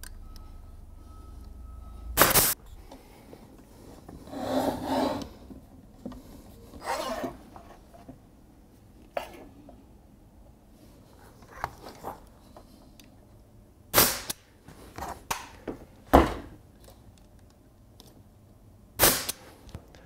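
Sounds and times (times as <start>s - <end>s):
nail gun shots: 2.2s - 2.6s, 13.9s - 14.4s, 19.0s - 19.5s.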